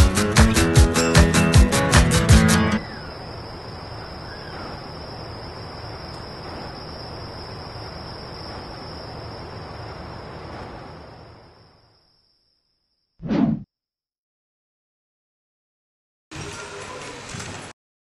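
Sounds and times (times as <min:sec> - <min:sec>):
crickets trilling: 0:00.2 - 0:13.2
faint outdoor hiss: 0:02.8 - 0:12.9.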